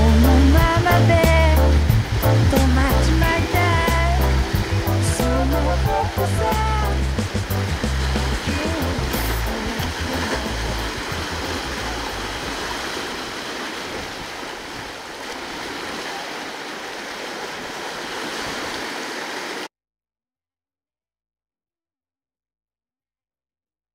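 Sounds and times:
low rumbling: 0:00.0 - 0:15.9
waves washing on rocky shore: 0:00.0 - 0:19.7.

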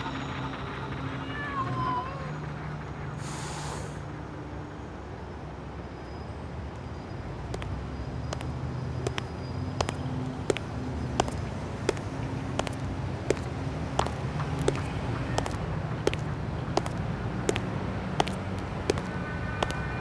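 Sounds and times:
burst of hiss: 0:03.2 - 0:04.0.

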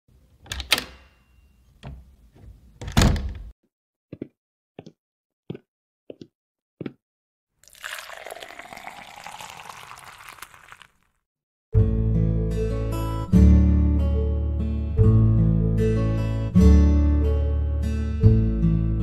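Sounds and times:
liquid dripping: 0:07.6 - 0:11.1
liquid pouring into a cup: 0:07.6 - 0:11.1.

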